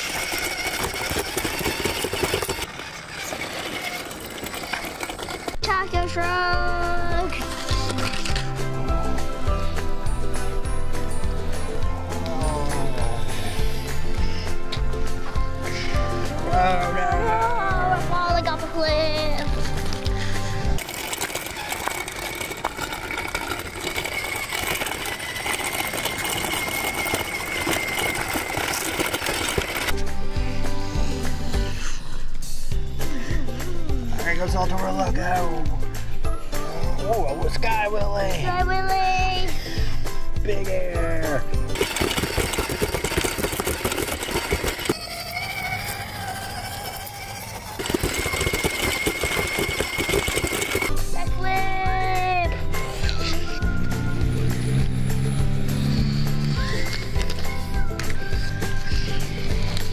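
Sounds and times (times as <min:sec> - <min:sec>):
electric motor whine: 0:00.0 - 0:05.6, 0:20.8 - 0:30.0, 0:41.7 - 0:51.0
tires crackling over gravel: 0:00.0 - 0:05.7, 0:19.4 - 0:29.9
toy truck motor and gear whine: 0:00.0 - 0:17.3, 0:18.0 - 0:59.9.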